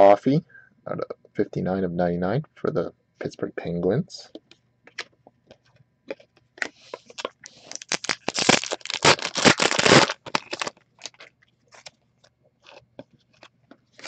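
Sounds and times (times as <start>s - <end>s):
wrapper tearing and crinkling: 7.1s - 11.9s.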